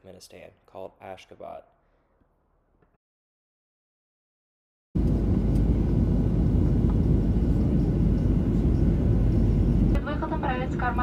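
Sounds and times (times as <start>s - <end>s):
jet engine cabin rumble: 5.0s - 11.0s.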